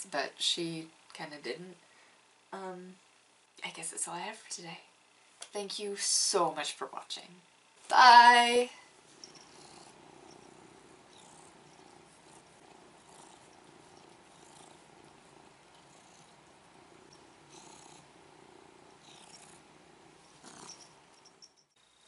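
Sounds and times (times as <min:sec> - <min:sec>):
cat purring: 0:08.8 - 0:22.0.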